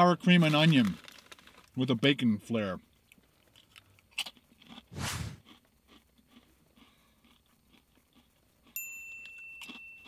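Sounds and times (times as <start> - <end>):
potato chip crunching: 0.2 - 1.8, 3.1 - 8.8.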